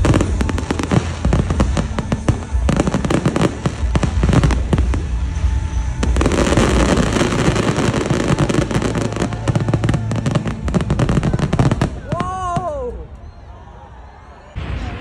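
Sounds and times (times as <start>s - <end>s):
fireworks bangs and crackle: 0.0s - 13.3s, 14.6s - 15.0s.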